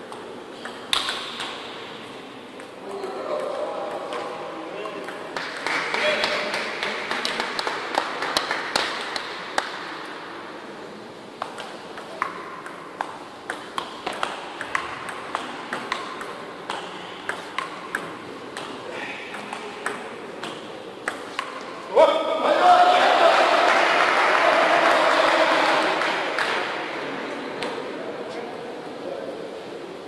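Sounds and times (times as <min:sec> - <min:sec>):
table tennis ball clicking: 0:11.4 - 0:21.6.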